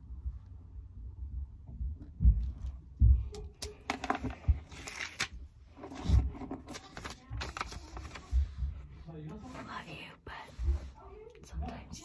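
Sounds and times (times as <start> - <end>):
paper scratching and rustling: 4.1 - 8.8.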